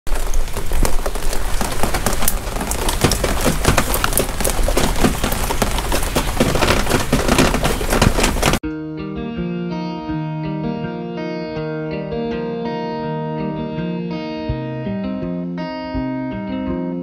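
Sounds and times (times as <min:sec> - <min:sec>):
rain on wooden deck: 0:00.0 - 0:08.6.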